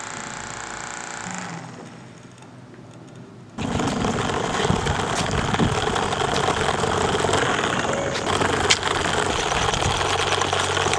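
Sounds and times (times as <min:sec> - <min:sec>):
small motor whirring buzz: 0:00.0 - 0:02.1
toy wheels clicking: 0:03.7 - 0:10.9.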